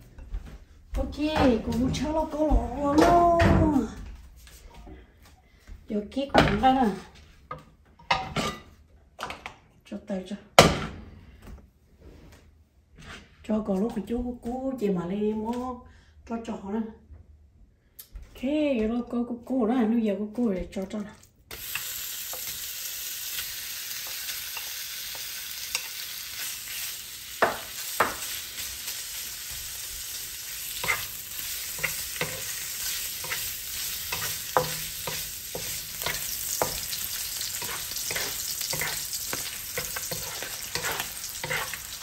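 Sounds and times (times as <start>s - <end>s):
food sizzling in a pan: 21.5s - 42.0s
spatula scraping a pan: 21.5s - 42.0s.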